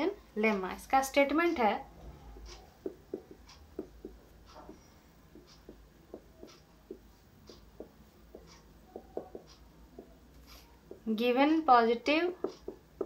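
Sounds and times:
marker squeaking on whiteboard: 0:02.0 - 0:11.1, 0:12.3 - 0:13.0.

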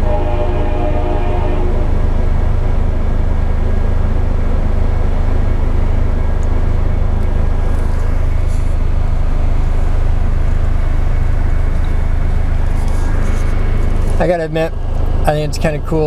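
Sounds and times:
freight train rolling past: 0:00.0 - 0:09.6
car cabin running noise: 0:00.0 - 0:16.0.

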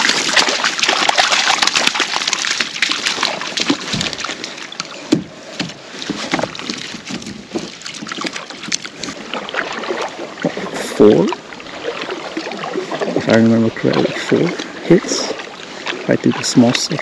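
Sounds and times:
water splashing and sloshing: 0:00.0 - 0:17.0
fishing gear knocking and clicking: 0:05.1 - 0:09.2.

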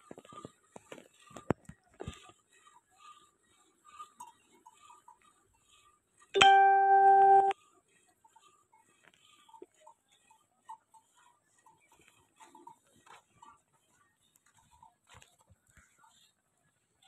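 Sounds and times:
cow being milked into steel bucket: 0:00.0 - 0:17.0
loud steady electronic tone: 0:06.4 - 0:07.6.

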